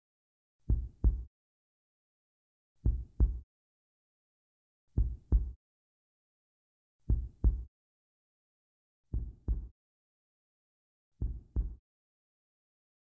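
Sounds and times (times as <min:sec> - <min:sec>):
slow heartbeat thumps: 0:00.7 - 0:01.3, 0:02.8 - 0:03.4, 0:05.0 - 0:05.6, 0:07.1 - 0:07.7, 0:09.1 - 0:09.7, 0:11.2 - 0:11.8.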